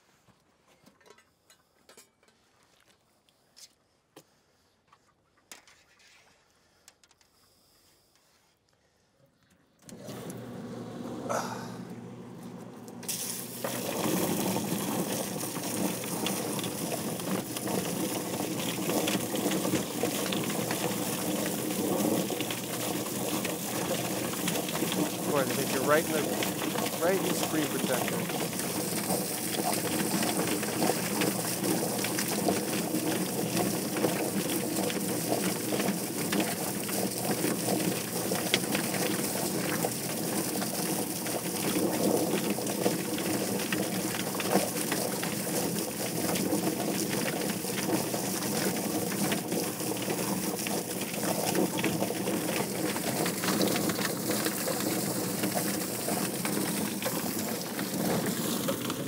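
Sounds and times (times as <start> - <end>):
chicken plucker running: 13.0 - 34.2
hose spraying water: 13.0 - 59.0.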